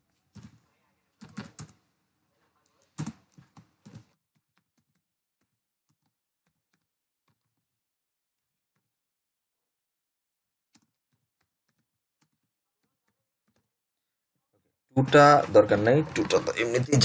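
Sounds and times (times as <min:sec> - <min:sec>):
computer keyboard typing: 0:01.2 - 0:01.8, 0:02.9 - 0:07.7, 0:10.8 - 0:13.7.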